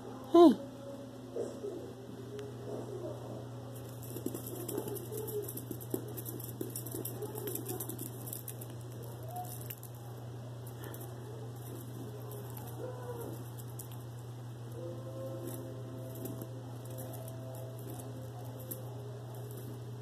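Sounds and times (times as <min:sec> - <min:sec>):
steady low hum: 0:00.0 - 0:20.0
rapid crackling and tapping: 0:03.7 - 0:20.0.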